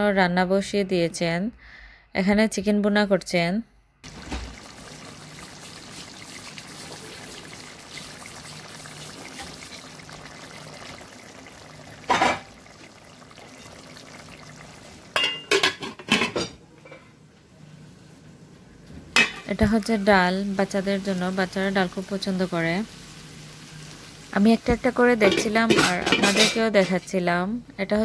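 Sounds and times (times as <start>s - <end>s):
curry bubbling in a pot: 4.0s - 15.5s
pot and lid clinking: 15.2s - 16.6s, 25.2s - 27.0s.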